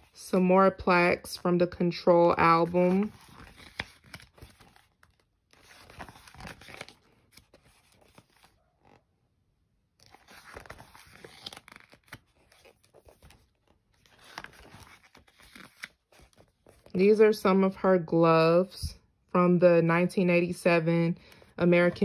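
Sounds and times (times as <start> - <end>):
paper pages rustling: 0.0 - 9.0, 10.0 - 17.0, 21.3 - 22.0.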